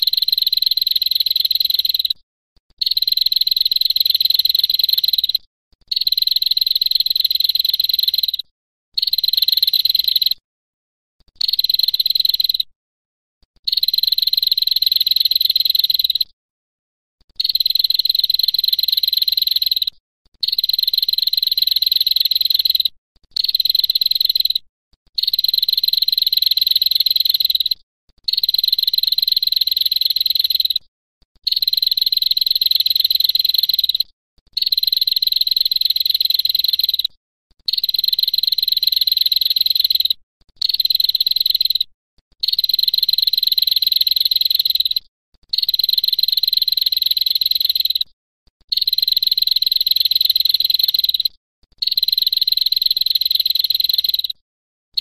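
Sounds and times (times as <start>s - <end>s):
bird's high-pitched buzzing trill: 0.0s - 2.2s, 2.8s - 10.4s, 11.3s - 12.7s, 13.6s - 16.3s, 17.4s - 24.6s, 31.4s - 37.1s, 37.7s - 48.1s, 48.7s - 54.4s.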